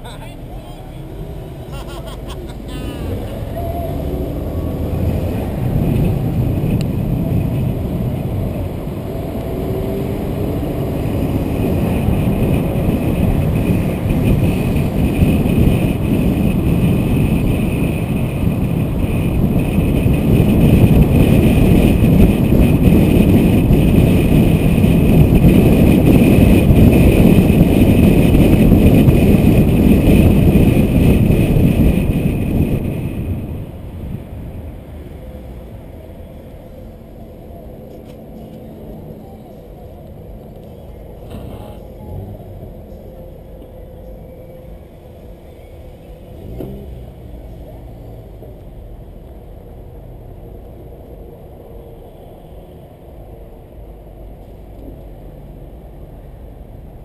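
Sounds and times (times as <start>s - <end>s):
car road and wind noise: 0.0s - 57.0s.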